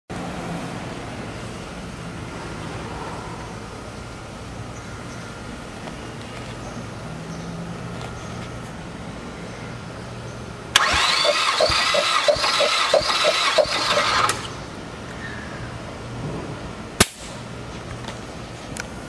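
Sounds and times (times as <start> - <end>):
engine cranking by starter: 10.8 - 14.7.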